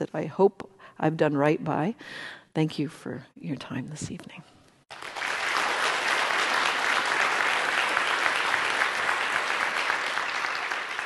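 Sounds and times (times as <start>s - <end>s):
audience applauding: 4.9s - 11.0s.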